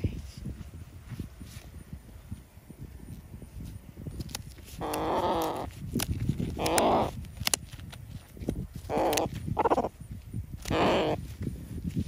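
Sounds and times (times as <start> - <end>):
sharp clicks: 4.2 - 9.4
hen squawking: 4.8 - 5.7, 8.9 - 9.9, 10.7 - 11.2.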